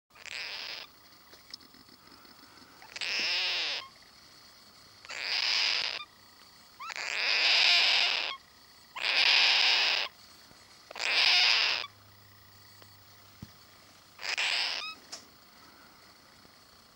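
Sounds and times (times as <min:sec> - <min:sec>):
cockatoo raspy hissing calls: 0:00.1 - 0:01.0, 0:01.8 - 0:04.2, 0:05.0 - 0:12.4, 0:14.1 - 0:16.4.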